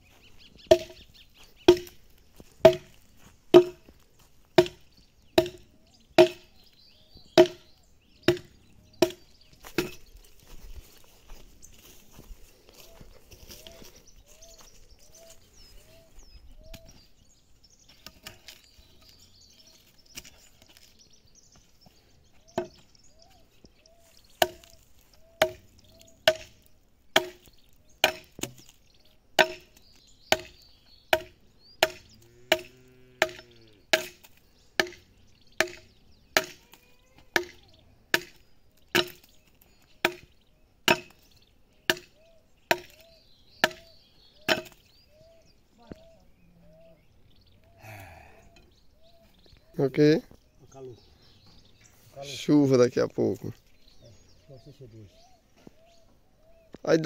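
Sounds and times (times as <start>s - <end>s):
axe chopping into log: 0.7s - 1.0s, 1.7s - 2.0s, 2.6s - 3.9s, 4.6s - 4.8s, 5.4s - 5.6s, 6.2s - 6.5s, 7.4s - 7.7s, 8.3s - 10.0s, 24.4s - 24.8s, 25.4s - 25.6s, 26.2s - 28.7s, 29.4s - 35.0s, 35.6s - 36.6s, 37.4s - 39.3s, 40.0s - 40.3s, 40.9s - 41.2s, 41.9s - 42.1s, 42.7s - 43.0s, 43.6s - 43.9s, 44.5s - 44.8s.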